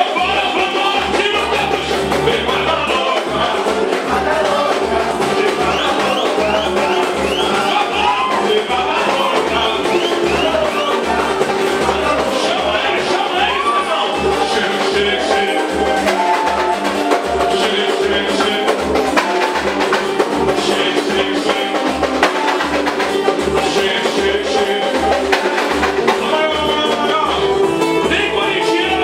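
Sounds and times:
voices: 0.0s - 19.4s
band playing steady beat: 0.0s - 29.0s.

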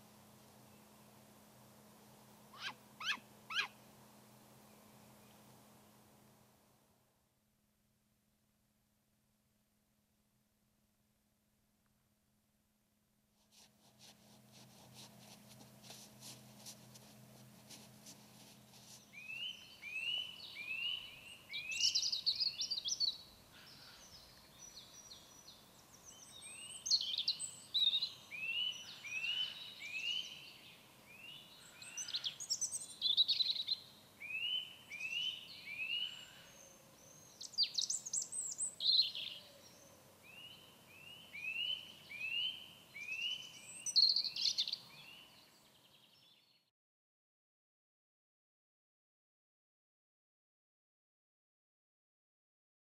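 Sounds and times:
robin singing: 2.5s - 3.8s, 19.0s - 46.6s.

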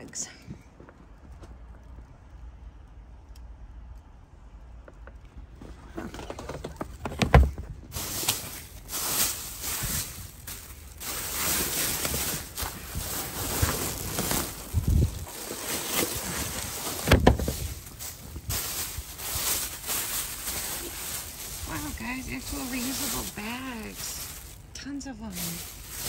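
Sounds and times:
low steady rumble: 0.0s - 26.0s
plastic bags crinkling: 6.9s - 26.0s.

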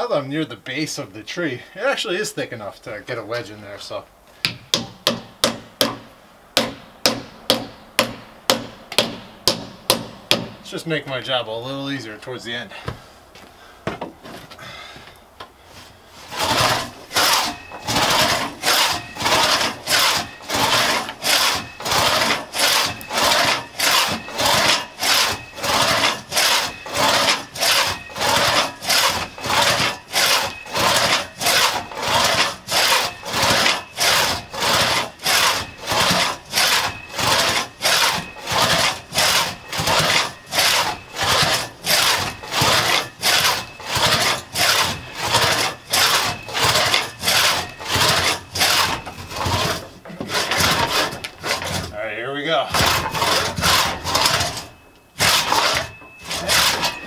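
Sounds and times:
crosscut saw cutting log: 16.2s - 52.0s, 52.6s - 57.0s.

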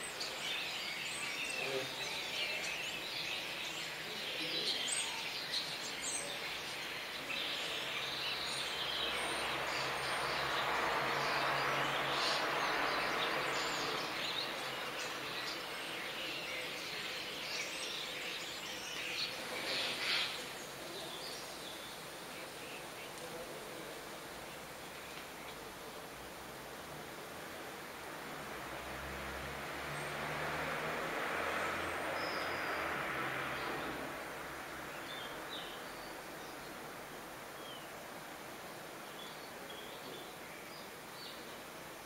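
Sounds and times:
broad rush of noise: 0.0s - 42.0s
steady background hiss: 0.0s - 42.0s
starlings chirping and whistling: 11.2s - 21.9s.

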